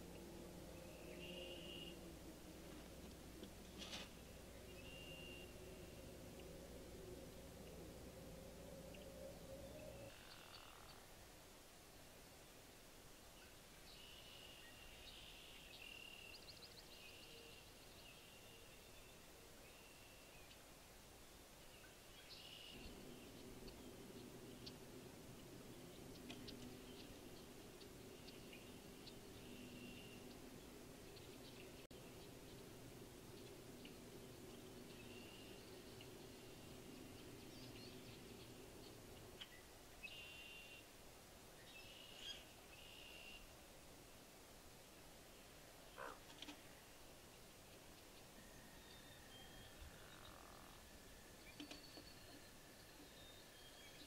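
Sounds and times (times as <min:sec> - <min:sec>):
faint low sound: 0:00.0 - 0:12.9, 0:15.8 - 0:40.0
distant high-pitched trilling calls: 0:00.9 - 0:02.0.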